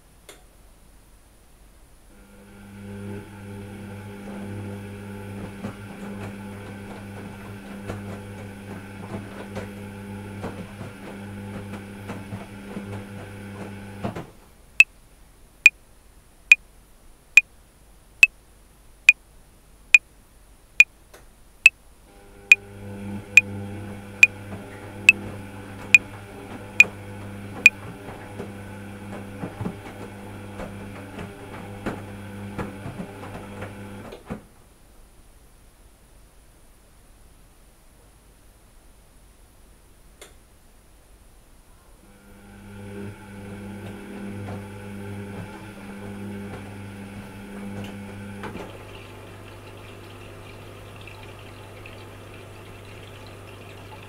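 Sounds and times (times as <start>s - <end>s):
washing machine motor humming: 2.2s - 14.2s, 22.1s - 34.1s, 42.1s - 54.0s.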